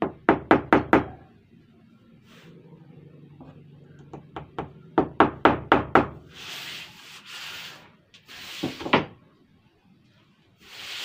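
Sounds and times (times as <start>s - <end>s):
knocks on wooden door: 0.0s - 1.2s
hand rubbing wood surface: 6.3s - 9.0s.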